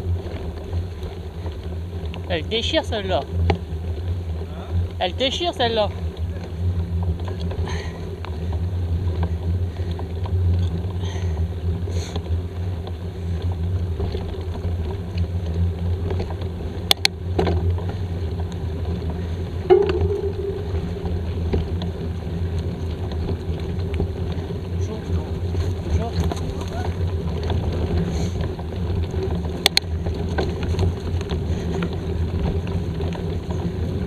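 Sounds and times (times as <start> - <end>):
bike tyres rumbling on dirt: 0.0 - 34.0
short knock: 19.7 - 21.1.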